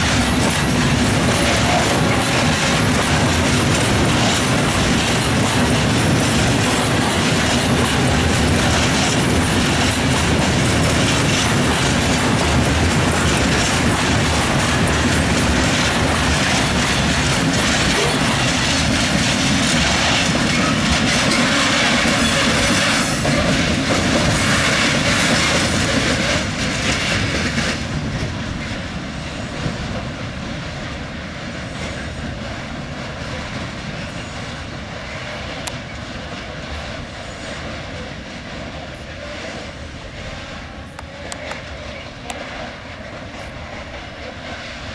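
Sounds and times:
freight train wheels on rails: 0.0s - 44.9s.

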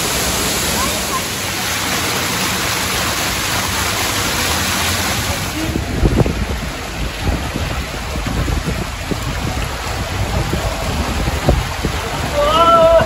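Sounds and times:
heavy low rumble: 0.0s - 12.4s
splashing falling water: 0.0s - 13.0s.

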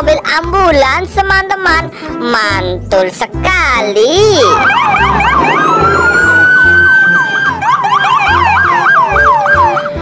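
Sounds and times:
ambulance siren yelp and wail: 4.4s - 10.0s.

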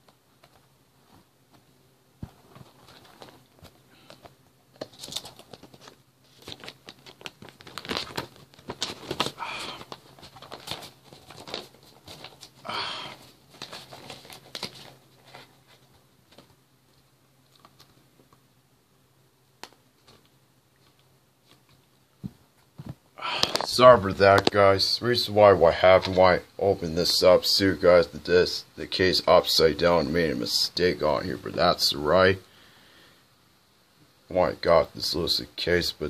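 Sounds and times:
paper sleeve rustling: 2.4s - 16.5s.

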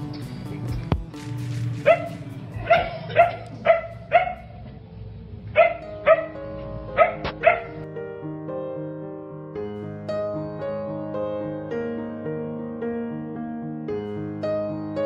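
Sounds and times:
soft background music: 0.0s - 15.0s
dog barking: 1.8s - 4.6s, 5.5s - 6.4s, 7.0s - 7.8s.

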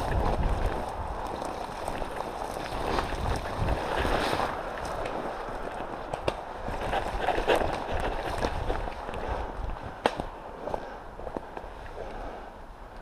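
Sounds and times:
footsteps through dry grass: 0.0s - 11.5s
twigs snapping: 10.0s - 10.4s.

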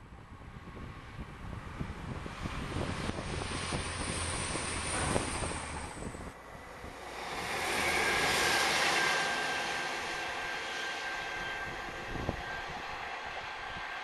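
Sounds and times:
rushing noise of approaching train: 0.0s - 14.0s
train engine and wheel rumble: 0.0s - 14.0s
faint high whine: 3.4s - 14.0s.

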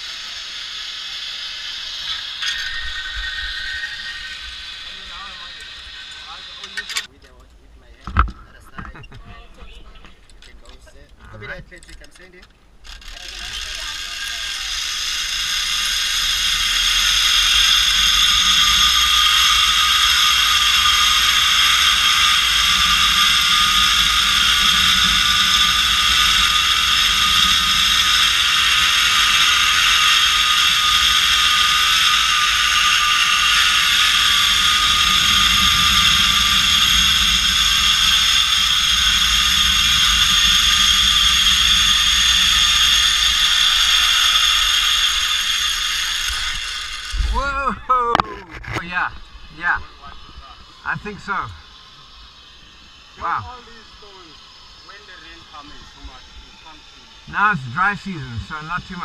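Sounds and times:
pulley wheels whining on cable: 0.0s - 7.4s, 10.0s - 59.0s.

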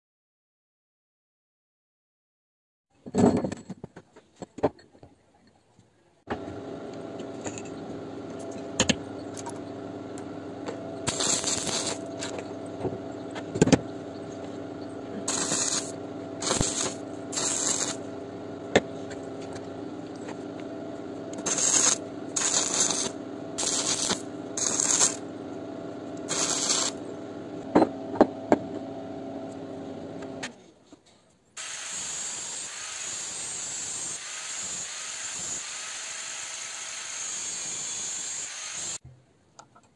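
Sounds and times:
power tool running: 6.3s - 30.5s, 31.6s - 39.0s
angle grinder spinning: 7.2s - 27.2s, 31.6s - 39.0s
harsh cutting noise: 7.2s - 28.8s.

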